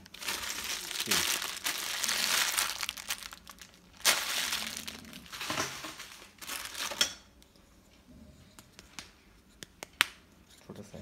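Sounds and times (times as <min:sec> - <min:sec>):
bubble wrap crinkling: 0:00.0 - 0:07.2.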